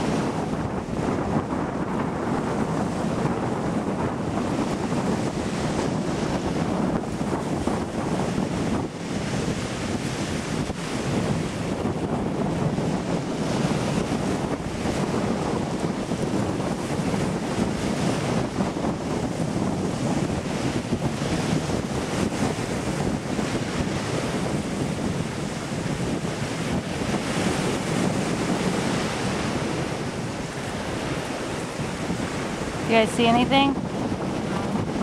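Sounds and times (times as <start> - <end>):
waves washing onto beach: 0.0 - 35.0
wind buffeting microphone: 0.0 - 35.0.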